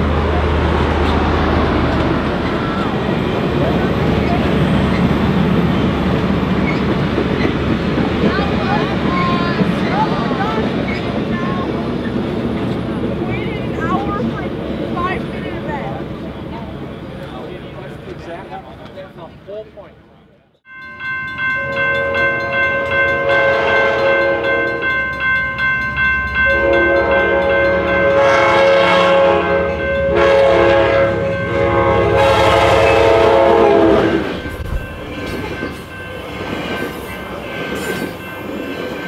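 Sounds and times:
train rumbling on rails: 0:00.0 - 0:39.0
steam locomotive whistle: 0:22.0 - 0:24.9, 0:26.5 - 0:34.7.

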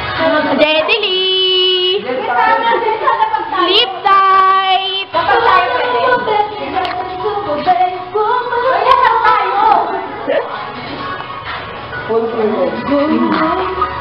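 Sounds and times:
girls singing: 0:00.0 - 0:10.3.

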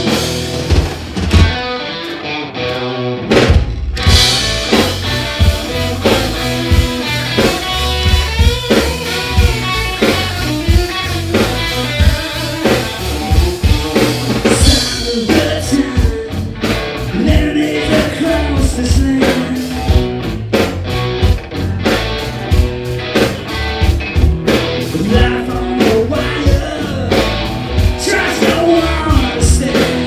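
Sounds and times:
drum hits: 0:00.0 - 0:01.8, 0:03.3 - 0:17.6
rock band playing: 0:00.0 - 0:30.0.

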